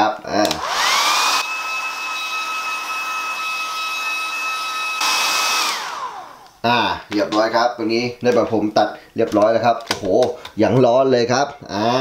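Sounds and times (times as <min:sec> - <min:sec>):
hair dryer running: 0:00.4 - 0:06.6.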